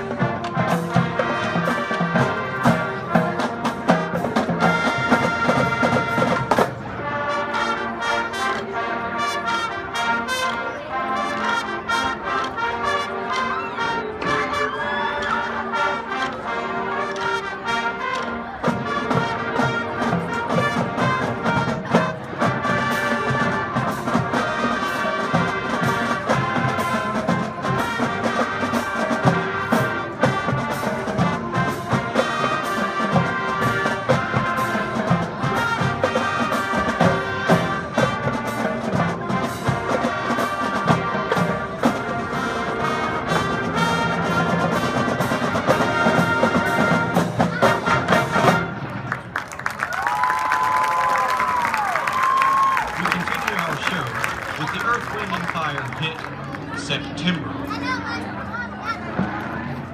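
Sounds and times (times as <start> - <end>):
brass playing a tune: 0.0 - 49.1.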